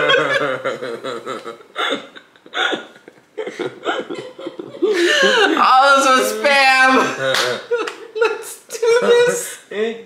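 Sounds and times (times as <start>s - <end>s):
man laughing in gasping bursts: 0.8s - 5.5s.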